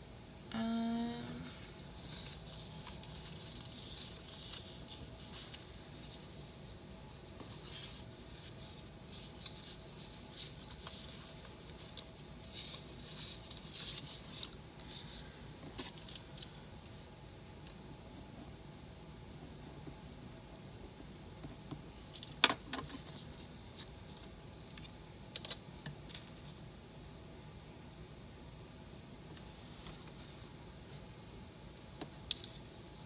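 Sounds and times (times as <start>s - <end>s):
paper stickers rustling: 1.5s - 16.6s.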